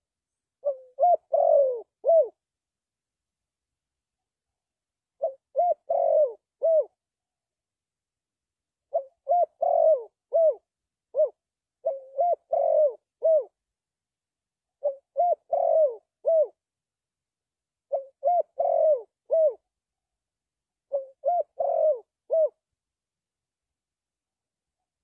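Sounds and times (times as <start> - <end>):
dove cooing: 0.6 - 2.4, 5.2 - 7.0, 8.9 - 13.6, 14.8 - 16.6, 17.9 - 19.7, 20.9 - 22.6.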